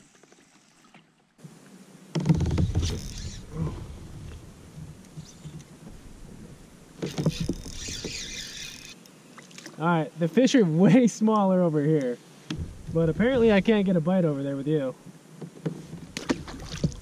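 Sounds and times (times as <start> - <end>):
wind rumbling on microphone: 2.3 - 8.2, 12.5 - 14.7
fishing reel cranking: 2.6 - 3.5, 7.0 - 9.0
fishing gear handling noise: 7.0 - 9.1.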